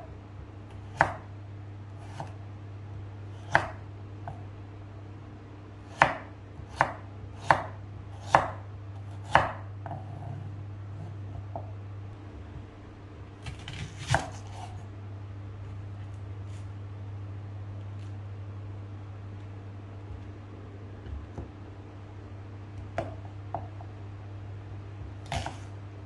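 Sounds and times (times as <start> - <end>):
knife chopping on wooden board: 0.8 - 1.3, 2.0 - 2.4, 3.4 - 4.4, 5.9 - 10.4, 13.4 - 14.8, 25.2 - 25.7.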